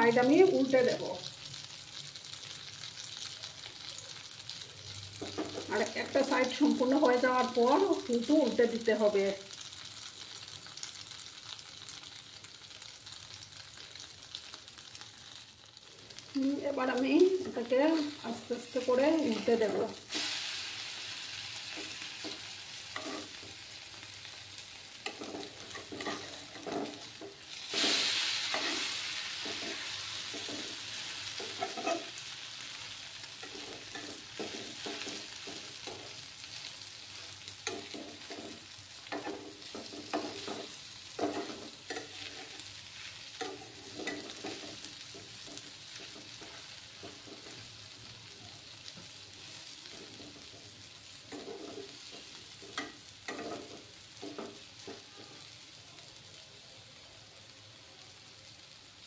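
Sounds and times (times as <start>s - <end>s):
pancakes sizzling in oil: 0.0s - 59.0s
spatula scraping and tapping pan: 5.2s - 5.8s, 21.7s - 23.6s, 25.0s - 32.2s, 33.4s - 36.2s, 37.6s - 47.7s, 49.8s - 50.7s, 51.3s - 55.3s.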